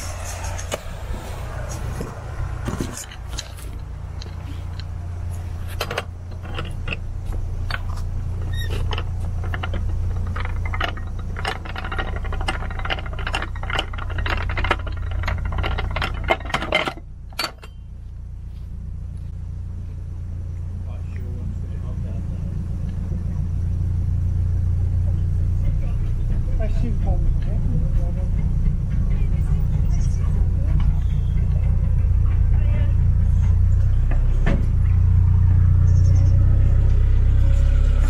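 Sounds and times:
boat engine humming: 0.0 - 38.0
small rattles and clicks: 2.6 - 17.8.

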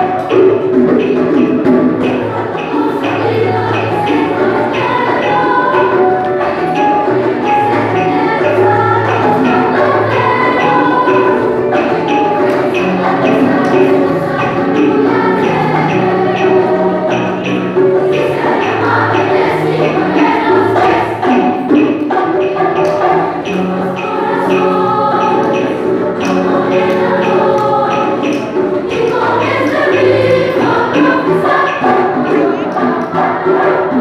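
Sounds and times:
children's choir singing: 0.0 - 34.0
steady rhythmic beat: 0.0 - 34.0.

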